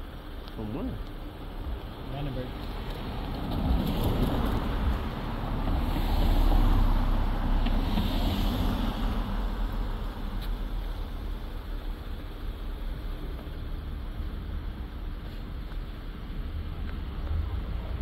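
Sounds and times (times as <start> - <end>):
car driving past: 3.2 - 10.2.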